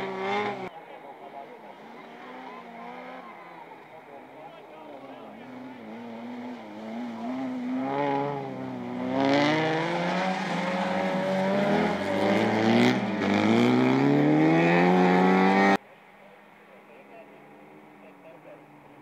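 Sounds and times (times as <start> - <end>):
car engine revving hard: 0.0 - 0.7, 5.4 - 15.8.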